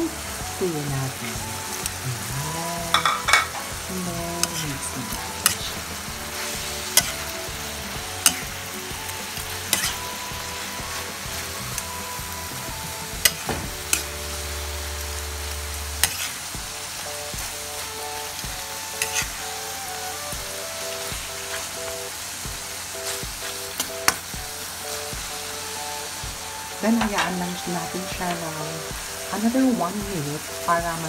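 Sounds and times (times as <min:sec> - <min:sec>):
food sizzling in frying pan: 0:00.0 - 0:31.0
metal spatula clacking against pan: 0:02.9 - 0:03.7.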